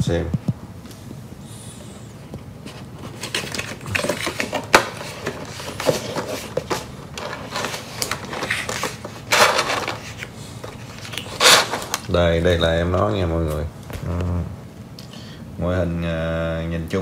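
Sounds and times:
cardboard sleeve scraping and rustling: 2.6s - 12.1s.

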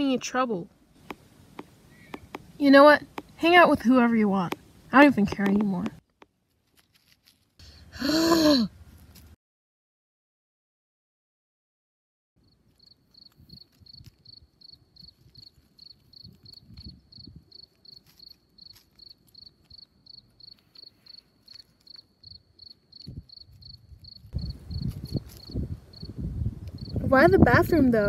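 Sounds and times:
cricket chirping: 12.4s - 27.0s
low rumbling on microphone: 24.2s - 28.0s.

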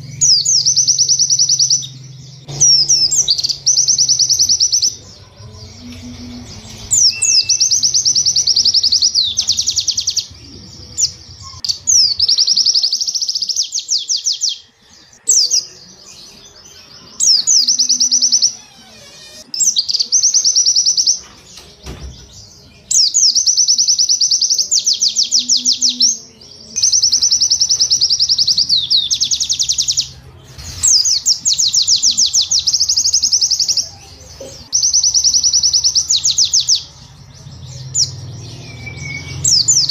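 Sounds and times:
bird song high-pitched bursts: 0.0s - 21.2s, 21.9s - 33.9s, 34.7s - 39.9s.

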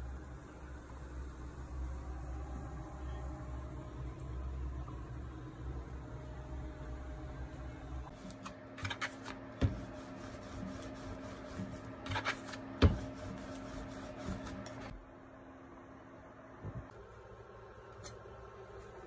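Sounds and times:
steady low hum: 0.0s - 19.0s
rolling pin rubbing on dough: 8.2s - 14.9s.

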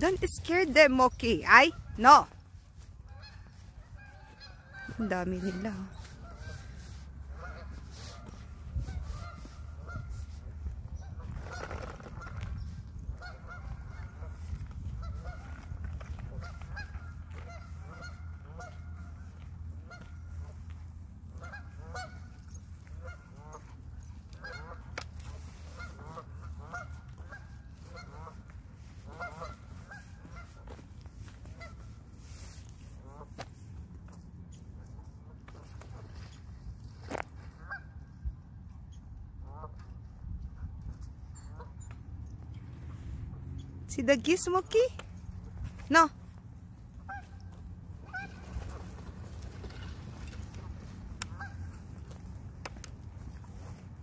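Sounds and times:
geese honking: 0.0s - 20.6s, 21.3s - 32.2s, 33.0s - 33.4s, 37.0s - 38.2s, 39.4s - 39.9s, 46.9s - 53.8s
steady low rumble: 5.8s - 41.8s.

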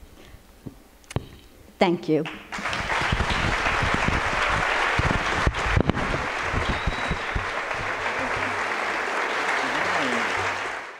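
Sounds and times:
audience applauding: 2.3s - 10.9s
low thumps: 2.4s - 8.6s.

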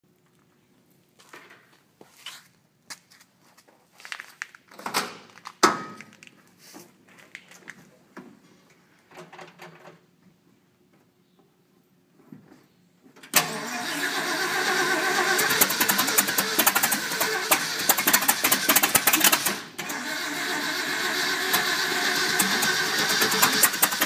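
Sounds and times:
car engine starting and running: 13.4s - 24.0s.

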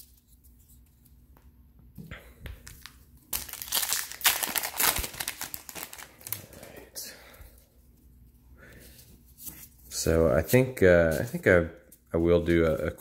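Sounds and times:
foil wrapper crinkling and tearing: 2.7s - 6.7s.

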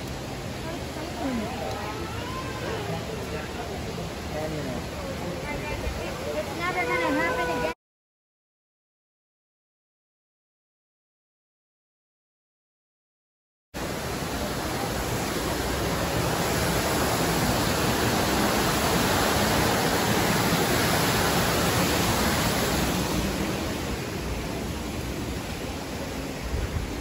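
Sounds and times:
waterfall splashing: 0.0s - 7.8s, 13.8s - 27.0s.

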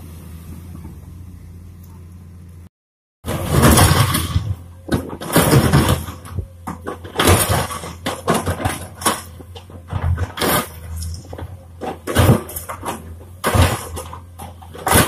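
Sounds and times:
excavator engine running: 0.0s - 15.0s
stone scraping and clunking on steel: 3.3s - 15.0s.

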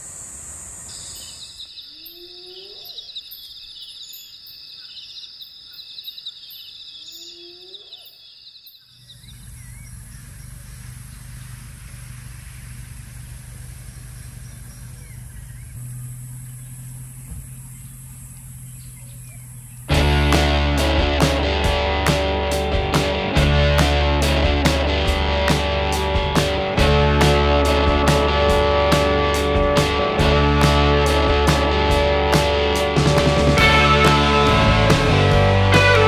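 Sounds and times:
insects pulsing shrill chorus: 0.0s - 19.9s
steady low hum: 9.2s - 20.6s.

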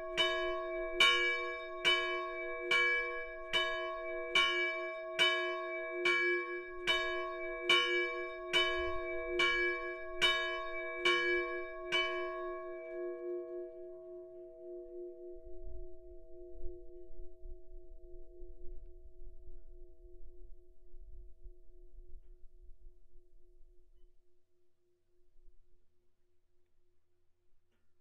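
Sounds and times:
church bell striking: 0.0s - 14.5s
long bell hum: 0.0s - 22.9s.

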